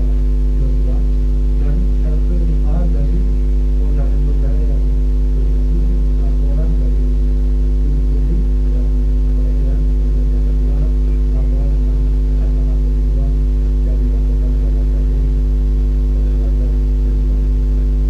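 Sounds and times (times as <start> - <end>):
faint muffled speech: 0.0 - 18.0
loud electrical mains hum: 0.0 - 18.0.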